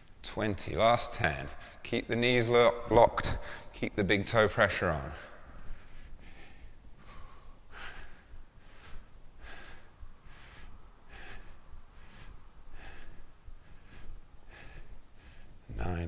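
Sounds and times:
man breathing through nose: 5.3 - 15.7.

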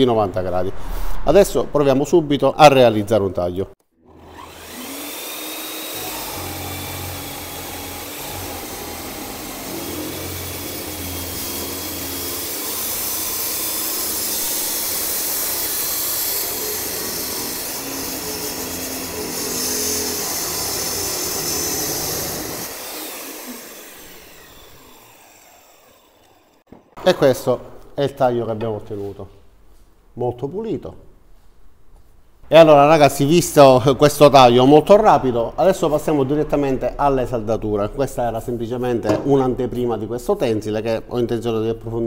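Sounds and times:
chop saw motor running: 4.1 - 26.6.

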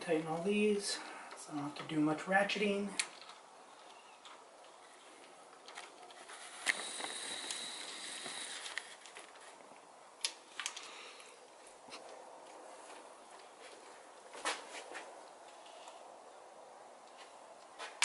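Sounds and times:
thin high whine: 6.2 - 9.0.

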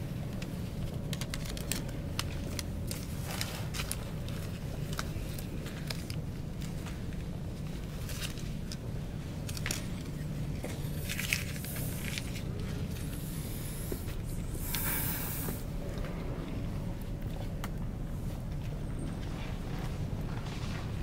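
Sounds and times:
low room hum: 0.0 - 21.0
faint clicks and rustles: 0.1 - 14.8
short hisses: 13.2 - 15.6.

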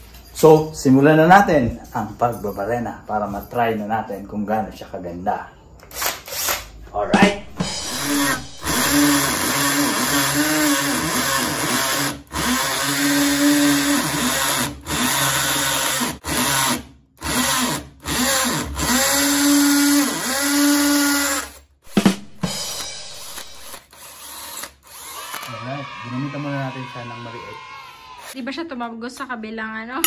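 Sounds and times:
hammer drill boring into concrete: 7.8 - 21.6, 22.7 - 27.3, 28.2 - 28.4.

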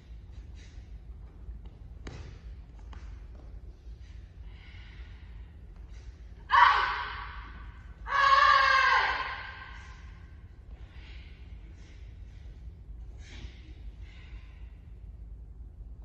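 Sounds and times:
person breathing sharply: 0.2 - 1.1, 3.8 - 7.8, 9.2 - 15.1
person yelling: 8.1 - 9.6.

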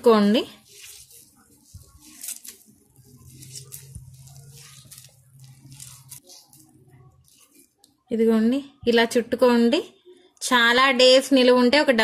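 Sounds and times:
soft wet squishing: 0.5 - 8.1
faint low hum: 0.6 - 9.1.

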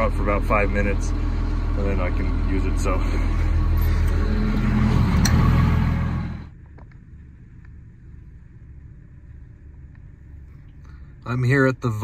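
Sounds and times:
diesel engine idling: 0.0 - 7.6
low hum inside car: 0.0 - 12.0.

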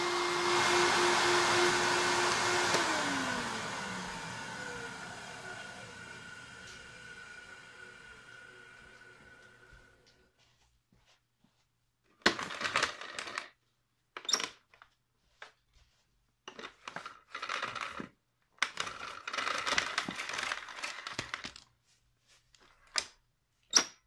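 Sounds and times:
vacuum cord rewind whirring: 0.0 - 10.3.

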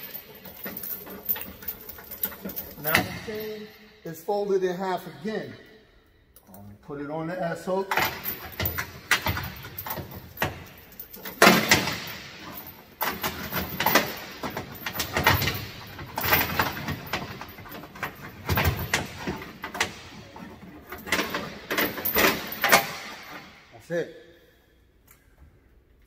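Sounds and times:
chain links knocking in metal box: 0.0 - 3.8, 7.9 - 23.7
steel chain rattling and clinking: 0.0 - 4.3, 7.8 - 23.8.

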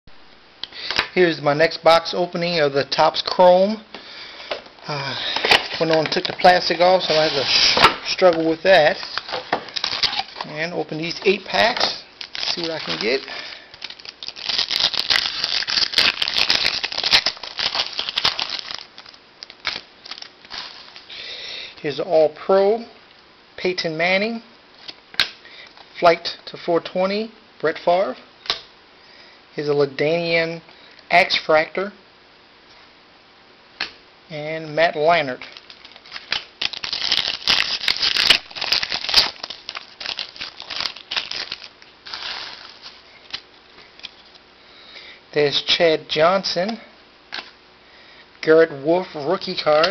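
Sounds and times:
foil wrapper crinkling: 4.9 - 21.3, 35.4 - 44.5.

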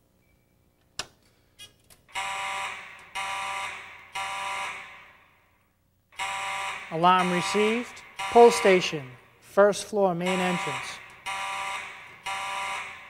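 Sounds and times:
fire alarm horn blasts: 2.1 - 5.4, 6.1 - 13.0.

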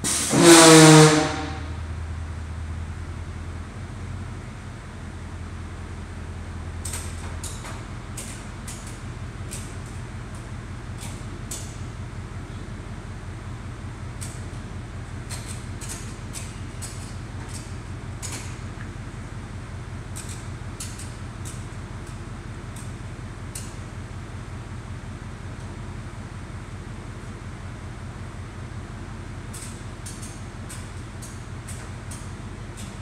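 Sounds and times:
ratchet straps clicking: 15.3 - 18.6, 20.1 - 22.9, 29.5 - 33.0.

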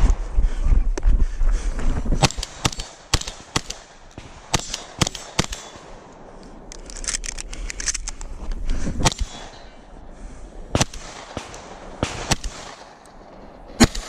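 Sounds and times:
shotgun firing: 2.2 - 6.2, 9.0 - 9.7, 10.7 - 14.0.

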